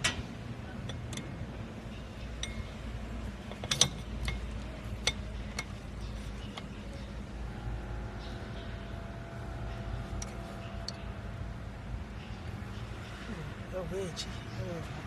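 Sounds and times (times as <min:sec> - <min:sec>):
low hum: 0:00.0 - 0:13.7
metal parts clicking: 0:03.4 - 0:06.8.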